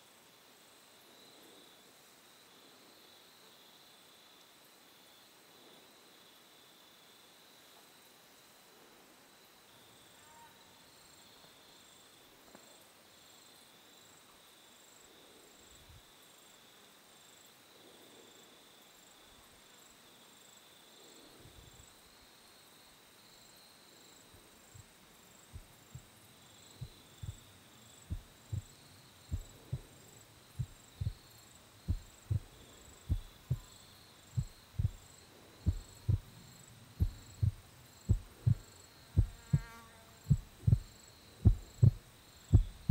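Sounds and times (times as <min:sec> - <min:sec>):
insects chirping: 0:00.0 - 0:42.9
muffled thumps on microphone: 0:37.0 - 0:38.6, 0:39.2 - 0:39.6, 0:40.3 - 0:42.9.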